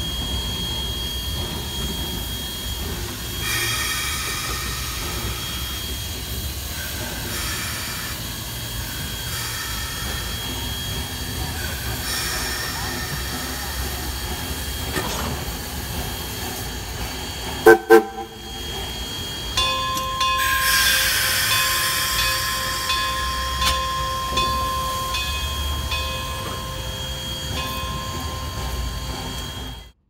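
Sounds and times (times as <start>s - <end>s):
engine whine: 0.0s - 30.0s
steam hissing: 0.0s - 30.0s
steam locomotive whistle toots: 17.4s - 30.0s.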